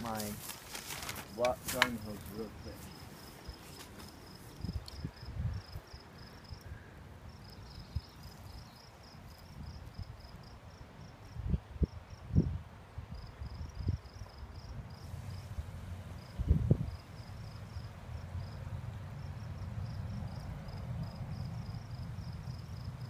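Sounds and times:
insects chirping: 0:00.0 - 0:12.5, 0:13.1 - 0:23.0
low steady rumble: 0:15.0 - 0:23.0.

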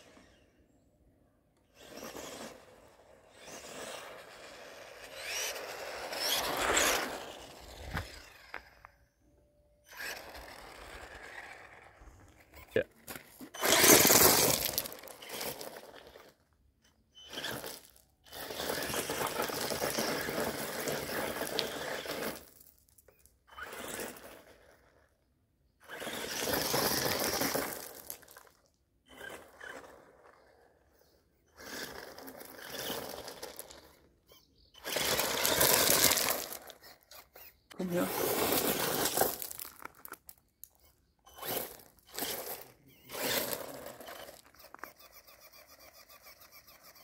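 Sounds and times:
rc truck electric drive: 0:00.0 - 0:00.8, 0:01.5 - 0:47.0
tyres crunching on gravel: 0:03.4 - 0:08.9, 0:09.9 - 0:16.4, 0:17.3 - 0:23.0, 0:25.9 - 0:30.7, 0:31.6 - 0:34.1, 0:34.8 - 0:47.0.

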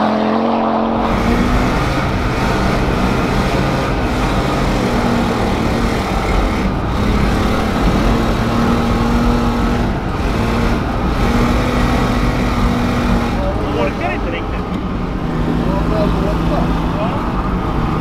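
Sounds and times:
car engine from inside cabin: 0:00.0 - 0:18.0.

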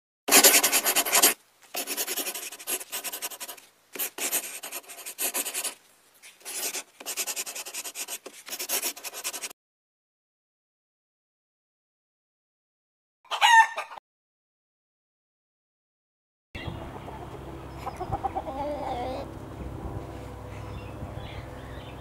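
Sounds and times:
pen scribbling on surface: 0:00.3 - 0:05.8, 0:06.4 - 0:09.6.

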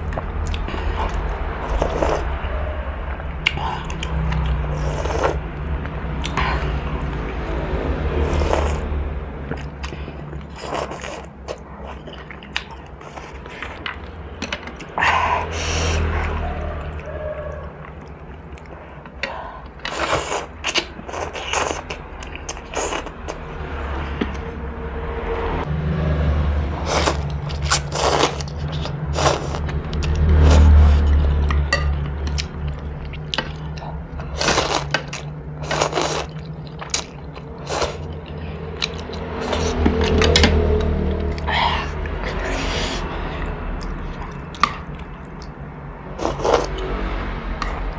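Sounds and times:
steady low hum: 0:00.0 - 0:47.9
noodles slurped and chewed: 0:03.4 - 0:07.4, 0:09.5 - 0:16.4, 0:17.8 - 0:23.3, 0:26.8 - 0:31.6, 0:32.3 - 0:45.6, 0:46.2 - 0:47.0.

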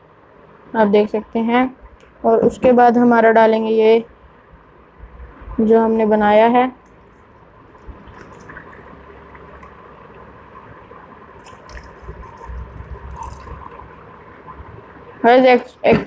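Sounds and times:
soft drink pouring into glasses: 0:08.0 - 0:10.3, 0:11.4 - 0:14.1.

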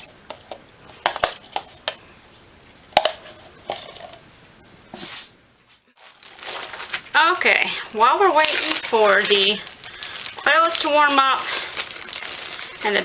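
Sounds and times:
handling rustle: 0:06.0 - 0:07.2, 0:07.8 - 0:13.0.

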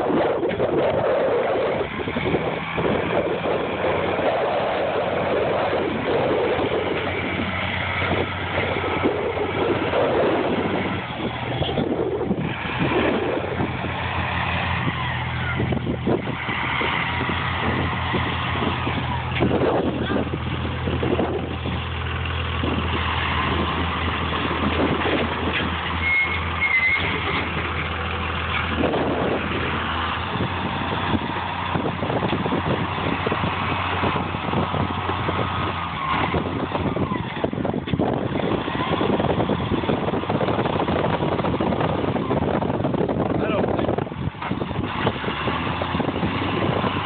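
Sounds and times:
engine humming: 0:00.0 - 0:47.0
brief high squeal: 0:26.0 - 0:27.2.

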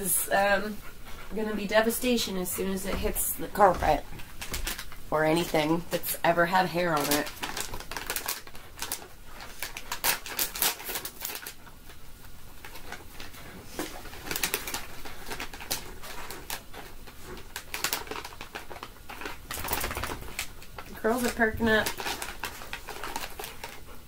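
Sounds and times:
plastic pouch crinkling: 0:04.2 - 0:12.0, 0:12.6 - 0:24.0.

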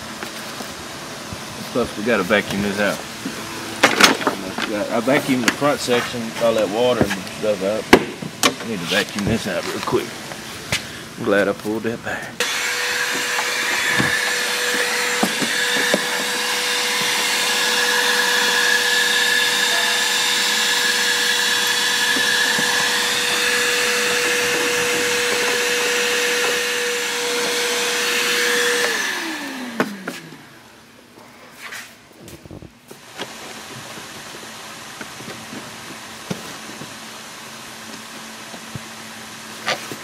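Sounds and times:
vacuum cleaner whining: 0:00.0 - 0:40.0
motor winding down: 0:12.4 - 0:30.7.

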